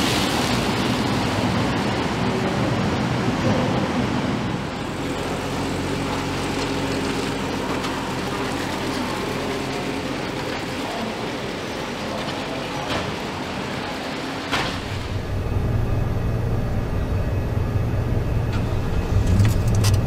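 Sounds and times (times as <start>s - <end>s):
steady machinery hum: 0.0s - 20.0s
car engine running: 0.3s - 20.0s.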